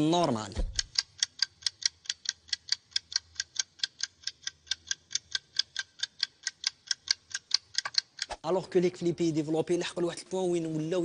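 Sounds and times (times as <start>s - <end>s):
fast even ticks: 0.7s - 8.4s.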